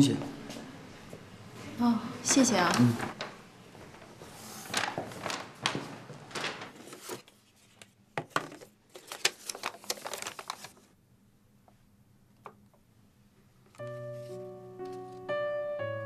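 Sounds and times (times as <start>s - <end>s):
paper bag rustling: 2.5s - 10.9s
tissue paper crinkling: 3.9s - 7.8s, 8.5s - 10.9s.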